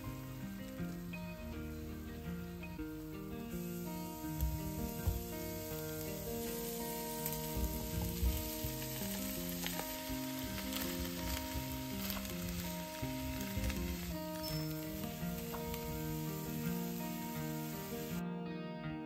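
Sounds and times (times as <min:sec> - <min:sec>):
background music of held notes: 0:00.0 - 0:19.0
food sizzling in a frying pan: 0:03.5 - 0:18.2.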